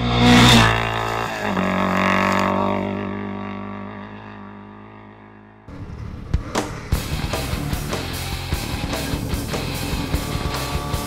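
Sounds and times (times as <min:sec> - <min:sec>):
distorted rock guitar chord: 0:06.8 - 0:11.0.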